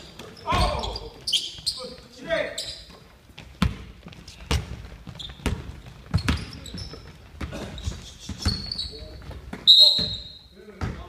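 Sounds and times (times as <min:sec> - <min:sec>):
sneaker squeaks: 0:00.0 - 0:11.0
basketball bouncing on hardwood: 0:03.4 - 0:07.6, 0:08.3 - 0:10.1, 0:10.8 - 0:11.0.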